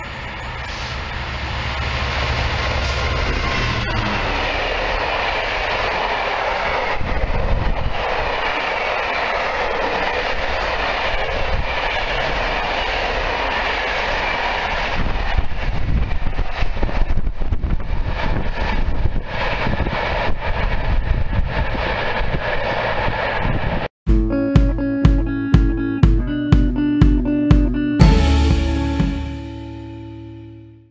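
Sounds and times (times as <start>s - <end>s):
freight train wheels rumbling on rails: 0.0s - 23.9s.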